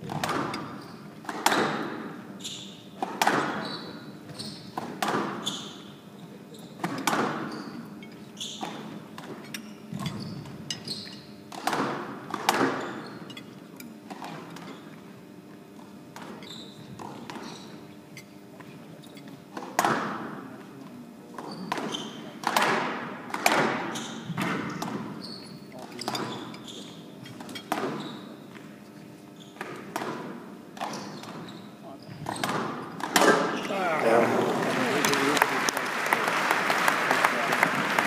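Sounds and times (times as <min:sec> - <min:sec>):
shoes squeaking on court floor: 0:00.0 - 0:11.5, 0:12.5 - 0:15.1, 0:15.7 - 0:19.8, 0:21.3 - 0:22.5, 0:23.6 - 0:34.3
squash ball thwacks: 0:21.7 - 0:25.1, 0:32.4 - 0:33.6.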